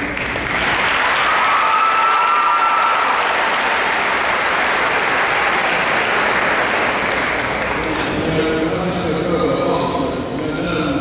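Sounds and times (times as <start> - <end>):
crowd applauding: 0.0 - 8.4.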